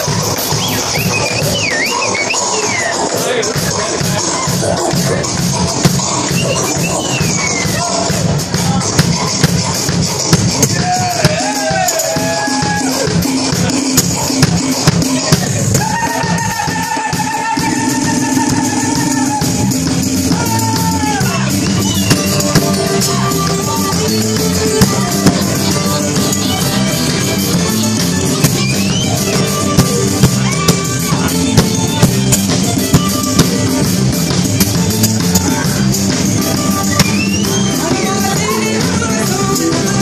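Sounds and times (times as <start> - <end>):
drum kit playing a beat: 0.0 - 40.0
sharp drum hits: 5.8 - 6.3, 8.9 - 11.6, 22.0 - 23.1, 24.8 - 26.0, 29.7 - 33.9
acoustic guitar strumming: 21.3 - 35.7.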